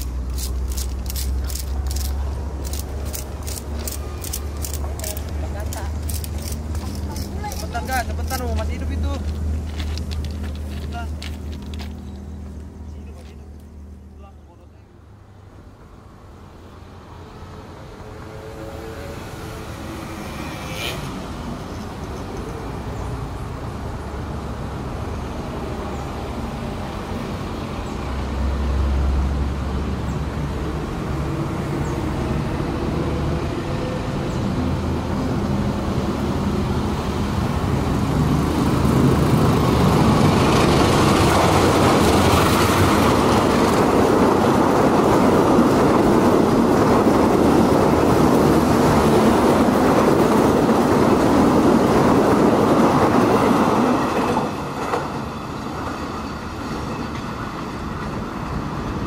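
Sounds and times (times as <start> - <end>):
train wheels on rails: 0.0 - 13.8, 17.6 - 59.0
diesel locomotive engine rumble: 0.0 - 59.0.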